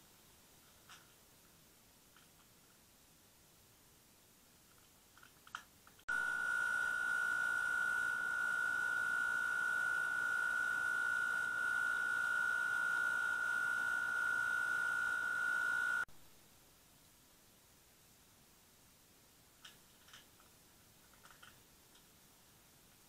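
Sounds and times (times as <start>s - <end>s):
high-pitched electronic tone: 6.1s - 16.1s.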